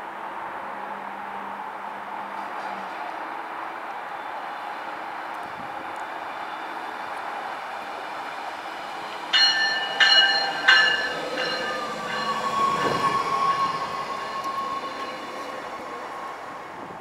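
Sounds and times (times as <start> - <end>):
train passing with high whine: 0.0 - 17.0
train warning bell: 9.3 - 16.3.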